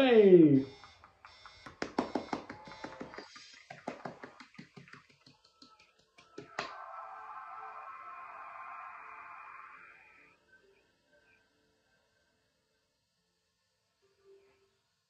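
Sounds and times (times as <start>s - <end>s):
faint steady background sound: 0.0s - 15.0s
person clapping hands: 0.6s - 7.1s.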